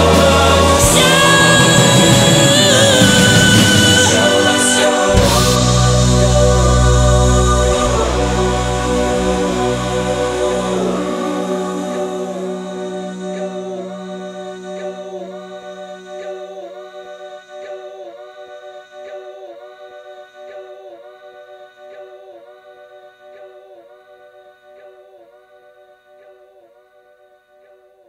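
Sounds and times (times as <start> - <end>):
sustained wavering music chord: 0.0 - 18.2.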